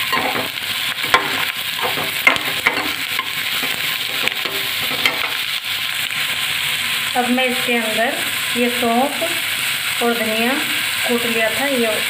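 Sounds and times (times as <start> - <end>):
steel spoon scraping a pan: 0.0 - 5.6
onions sizzling in hot oil: 0.0 - 12.0.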